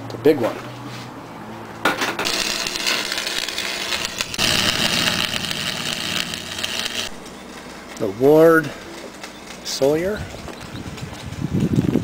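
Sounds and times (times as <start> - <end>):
arc welding crackling hiss: 2.2 - 7.3
high buzz: 2.2 - 7.6.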